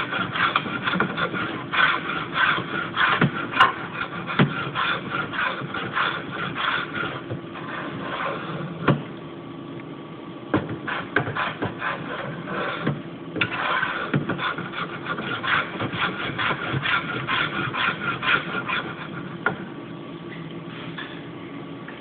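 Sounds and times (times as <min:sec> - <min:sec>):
hand tool scraping wood: 0:00.0 - 0:08.6, 0:10.8 - 0:19.3.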